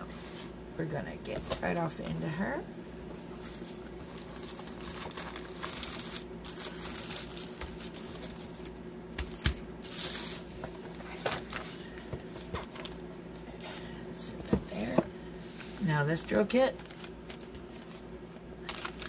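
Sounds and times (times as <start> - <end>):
faint steady hum: 0.0 - 19.0
plastic bags crinkling: 3.5 - 12.0, 16.2 - 17.9, 18.6 - 19.0.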